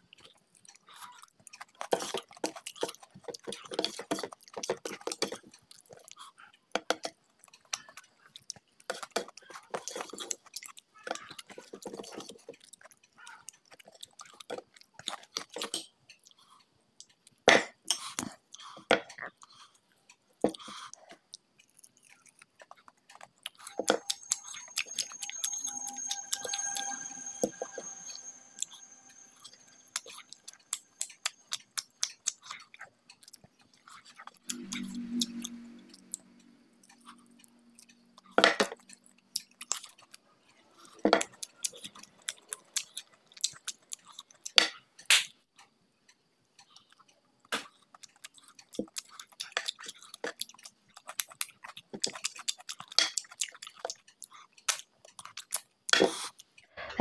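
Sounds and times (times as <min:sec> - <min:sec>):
chewing: 0:00.0 - 0:45.1, 0:46.6 - 0:56.7
wet chewing mouth clicks: 0:29.9 - 0:40.2, 0:40.8 - 0:44.6, 0:46.6 - 0:56.5.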